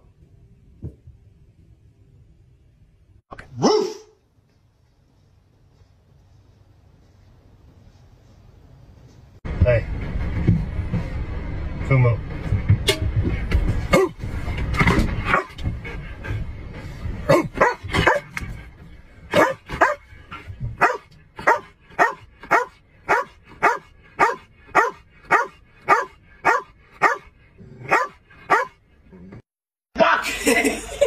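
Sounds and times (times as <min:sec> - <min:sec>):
dog barking: 0:03.5 - 0:04.2, 0:13.9 - 0:14.2, 0:15.3 - 0:15.6, 0:17.3 - 0:18.3, 0:19.3 - 0:20.0, 0:20.8 - 0:28.8.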